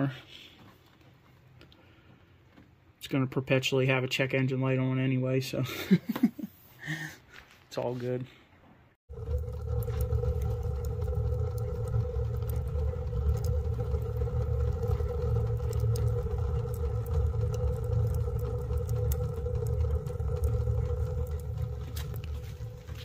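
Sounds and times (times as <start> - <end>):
constant hum: 9.1 - 23.0
fire crackling: 9.1 - 23.0
wood stove draft rumble: 9.1 - 23.0.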